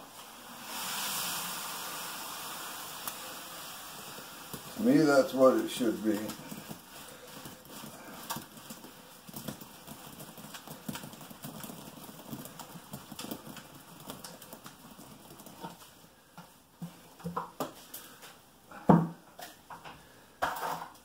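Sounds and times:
wet concrete plopping: 6.0s - 15.8s.

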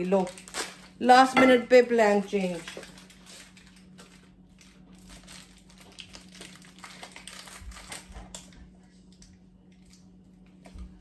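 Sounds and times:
plastic packet crinkling: 0.0s - 1.3s, 2.0s - 8.6s.

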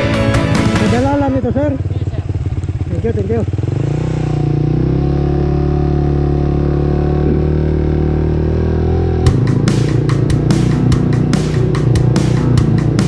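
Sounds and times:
rock music with drum beat: 0.0s - 1.4s, 9.2s - 13.0s
motorcycle engine running: 0.0s - 13.0s.

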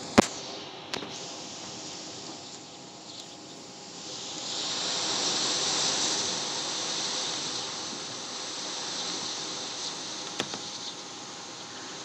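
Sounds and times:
wind gusting through trees: 0.0s - 12.0s.

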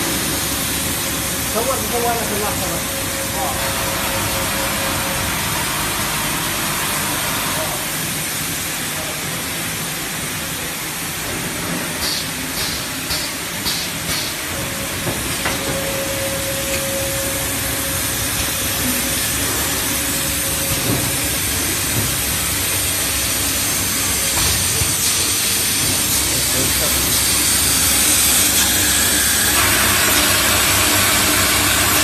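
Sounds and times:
steady machine whine: 0.0s - 11.8s, 13.8s - 32.0s
bottling machinery din: 14.0s - 32.0s.

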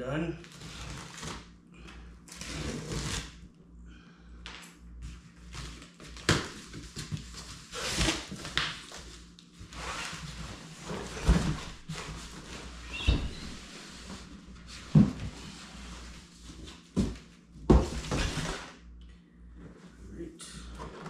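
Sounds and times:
cardboard flaps scraping: 5.4s - 18.7s.

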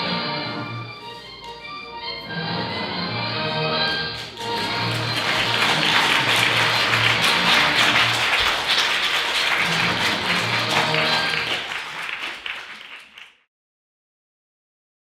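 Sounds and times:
music playing: 0.0s - 12.1s
audience applauding: 3.9s - 13.5s.

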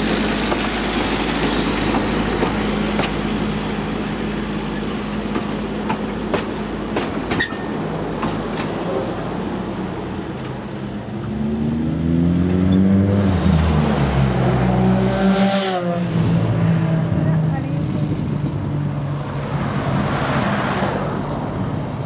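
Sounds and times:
wheels clicking over rail joints: 0.0s - 3.6s, 4.2s - 9.4s
vehicle engine accelerating: 10.8s - 19.0s.

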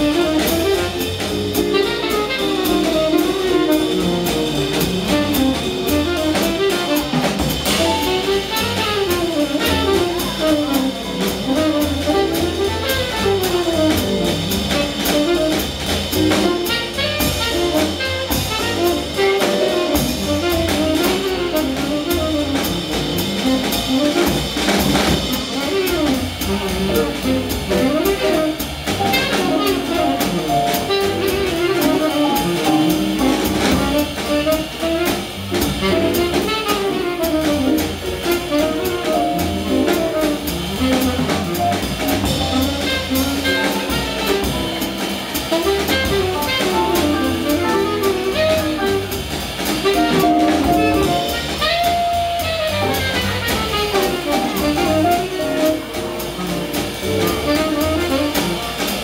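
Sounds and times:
drum kit cymbal strokes: 0.0s - 59.0s
tenor saxophone melody: 1.6s - 4.0s, 25.4s - 33.0s, 33.9s - 39.0s, 39.9s - 49.2s, 49.8s - 55.9s.

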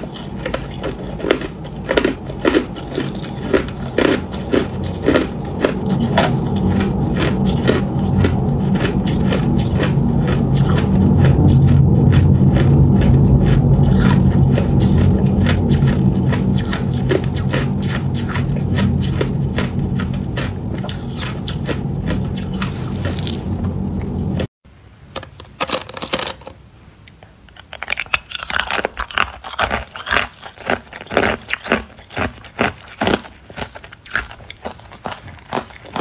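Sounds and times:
ice crunching in mouth: 0.0s - 24.4s, 27.5s - 36.0s
steady low hum: 0.0s - 25.1s.

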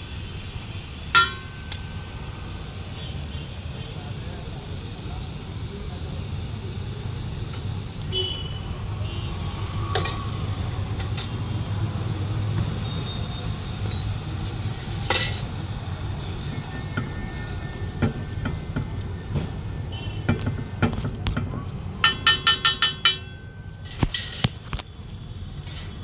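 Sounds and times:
street traffic rumble: 0.0s - 26.0s
metal spatula clinking on griddle: 1.2s - 1.8s, 15.0s - 15.4s, 22.0s - 24.5s.

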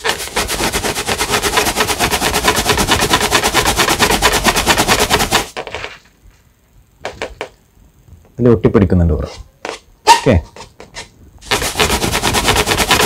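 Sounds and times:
balloon rubbing on hair: 0.0s - 6.0s, 11.4s - 13.0s.

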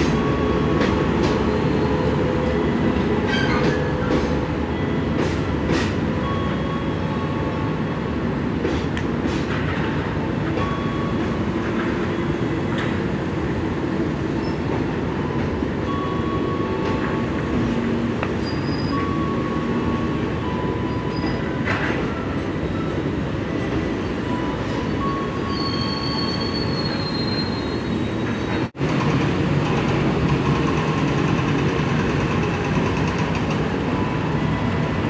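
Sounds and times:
train wheels rumbling on rails: 0.0s - 35.0s
high-pitched wheel squeals: 18.4s - 19.2s, 25.1s - 28.7s.

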